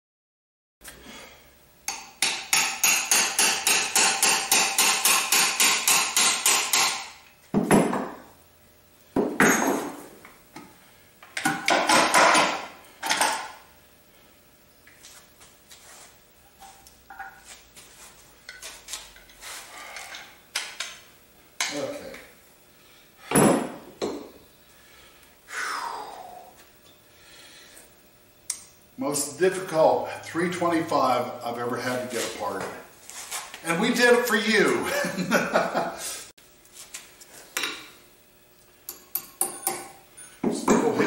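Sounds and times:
metal-on-metal hammering: 0:01.9 - 0:08.2, 0:38.9 - 0:40.9.

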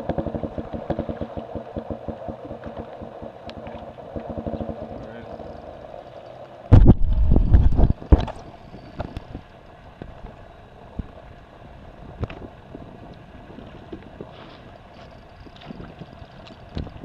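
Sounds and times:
small knocks and ticks: 0:00.0 - 0:06.6, 0:15.0 - 0:17.0
water around boat: 0:00.0 - 0:17.0.

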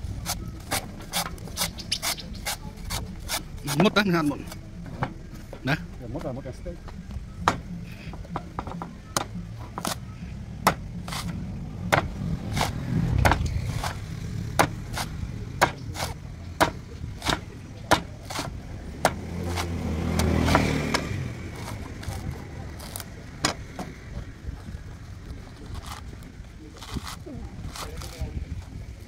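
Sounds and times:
knife chopping coconuts: 0:00.2 - 0:05.2, 0:08.3 - 0:10.0, 0:10.6 - 0:24.0.

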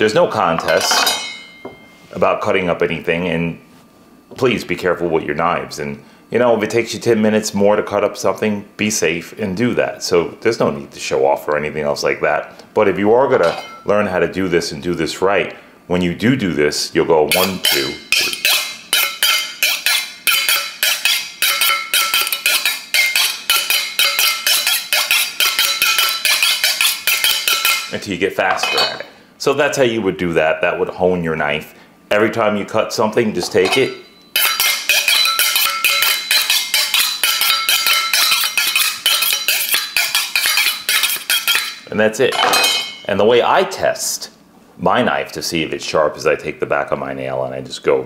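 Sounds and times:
knife scraping on honing rod: 0:17.3 - 0:28.0, 0:33.6 - 0:41.9.

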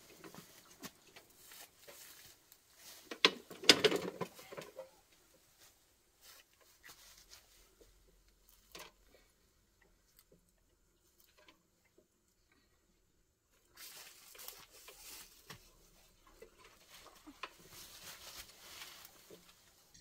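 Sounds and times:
brush and twigs crackling: 0:00.0 - 0:09.3, 0:13.5 - 0:19.9.

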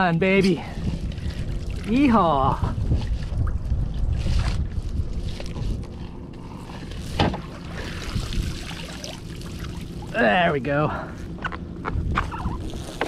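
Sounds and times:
wind buffeting microphone: 0:00.0 - 0:10.2, 0:11.1 - 0:13.0
water splashing off net: 0:07.2 - 0:10.1.

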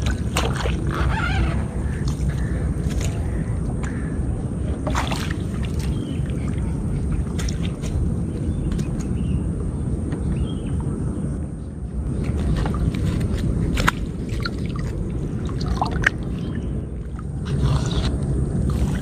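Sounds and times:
water sloshing and splashing: 0:00.0 - 0:09.3, 0:12.1 - 0:19.0
low rumble: 0:00.0 - 0:19.0
water dripping: 0:13.8 - 0:16.6.

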